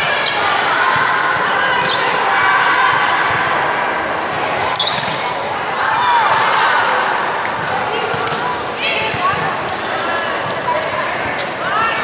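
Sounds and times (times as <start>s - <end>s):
sneakers squeaking on court: 4.0s - 5.4s.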